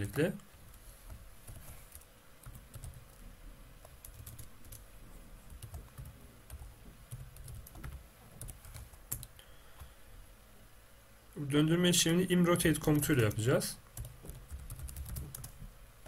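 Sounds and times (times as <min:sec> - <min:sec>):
typing on a computer keyboard: 0:01.5 - 0:03.2, 0:03.8 - 0:04.8, 0:05.5 - 0:09.3, 0:14.0 - 0:15.6.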